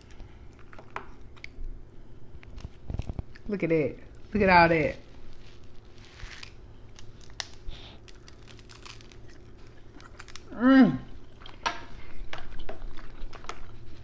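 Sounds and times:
chewing: 6.2s - 14.0s
crab shell cracking: 6.4s - 10.5s.

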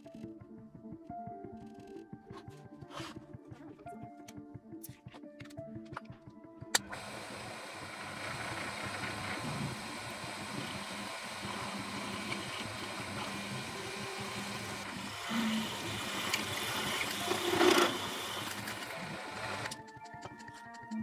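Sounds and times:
drill press cutting metal: 6.8s - 19.8s.

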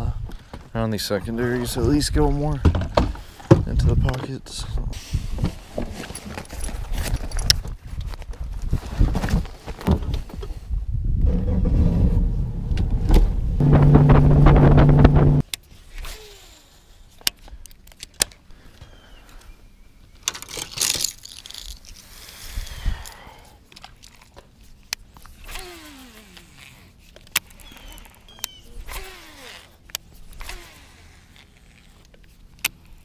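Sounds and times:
wind noise: 1.4s - 5.9s, 6.6s - 15.4s
boat engine running: 13.6s - 15.4s
fishing reel clicking and rustling: 20.2s - 33.0s.

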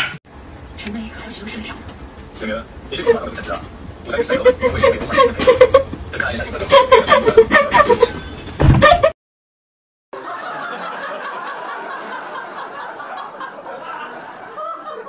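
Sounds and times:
many people laughing: 3.0s - 8.2s, 10.2s - 15.0s.

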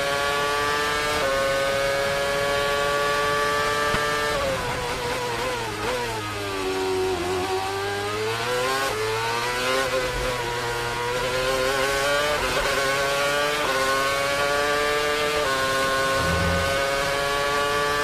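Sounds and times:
racing car engine accelerating: 11.8s - 18.0s.

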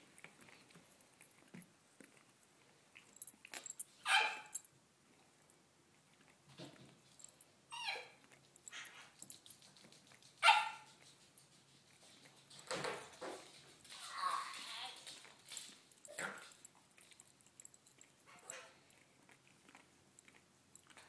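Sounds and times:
dog barking: 4.1s - 4.5s, 10.4s - 10.9s.

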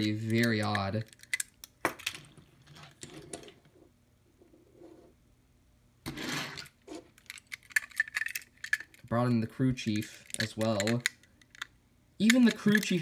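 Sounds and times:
toy cars clicking on table: 10.0s - 13.0s.

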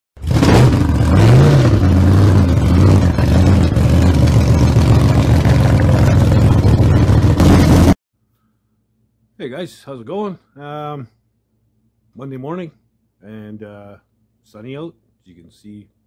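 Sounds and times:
vehicle engine idling: 0.3s - 8.0s.

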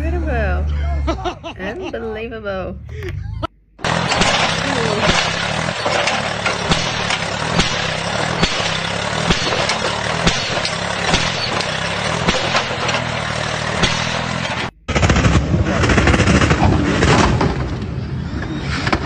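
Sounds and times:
tractor engine under heavy load: 0.0s - 19.0s
wheels churning in dirt: 3.8s - 19.0s.

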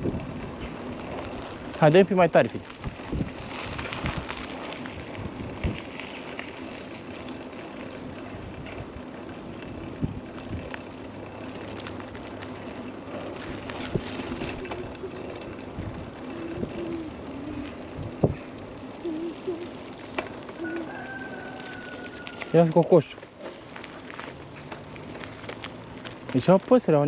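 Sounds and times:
wind noise: 0.0s - 0.7s, 2.8s - 6.1s, 9.8s - 10.8s, 13.5s - 18.6s
bike clicks and rattles: 0.0s - 27.0s
bike tyres rolling: 0.0s - 27.0s.

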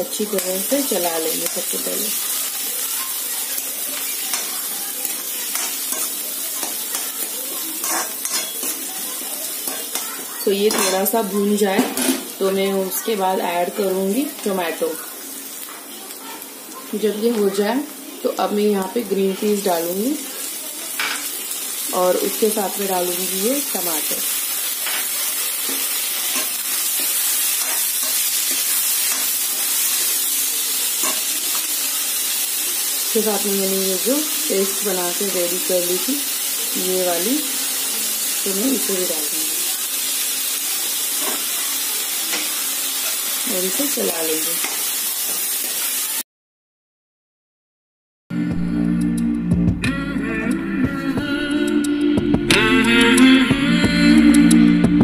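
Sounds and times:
vegetables sizzling in hot oil: 0.0s - 46.2s
metal ladle scraping pan: 7.8s - 8.8s.

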